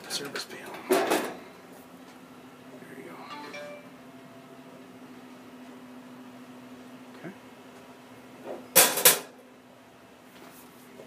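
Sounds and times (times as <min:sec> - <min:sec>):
steady low hum: 0:00.0 - 0:08.6.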